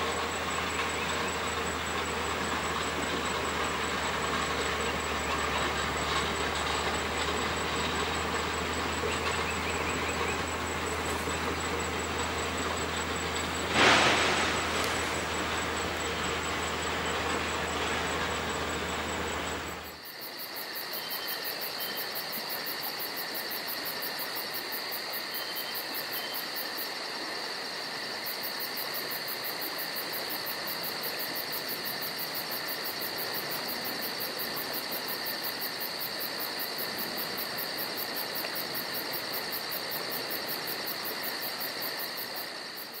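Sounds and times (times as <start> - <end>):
noise with low hum: 0.0 - 20.0
insect chorus shrill drone: 0.0 - 43.0.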